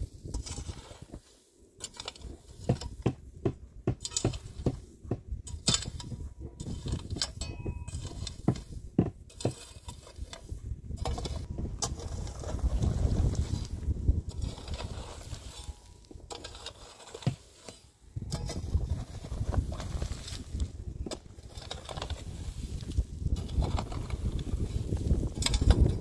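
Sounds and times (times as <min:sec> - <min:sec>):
short ringing clink: 0:07.4 - 0:07.9.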